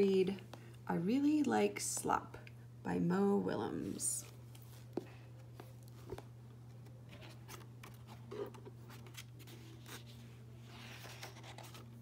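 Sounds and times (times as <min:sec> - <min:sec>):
low steady hum: 0:00.0 - 0:12.0
book pages turning: 0:04.2 - 0:12.0.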